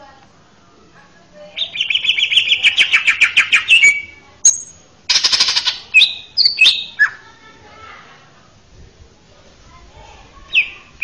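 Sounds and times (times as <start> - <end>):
bird singing trills and whistles: 1.5 - 7.2, 10.5 - 10.9.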